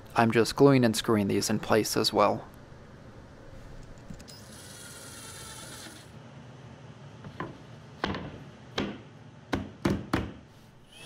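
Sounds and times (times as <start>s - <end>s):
sharp knocks on wood: 8.0s - 10.4s.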